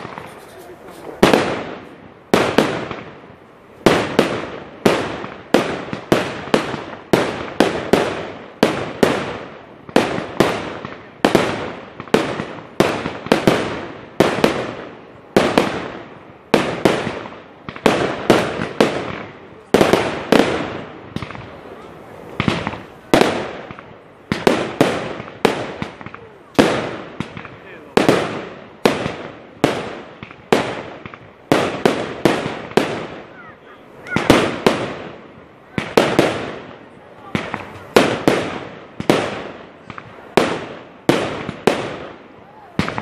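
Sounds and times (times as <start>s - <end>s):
fireworks bursting with echo: 0.0s - 43.0s.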